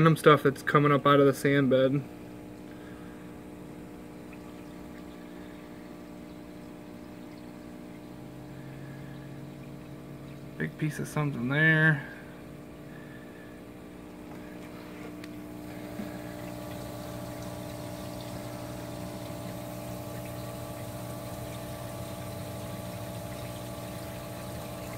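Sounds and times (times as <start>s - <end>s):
pump electric hum: 0.0s - 24.9s
water rushing and churning: 14.4s - 24.9s.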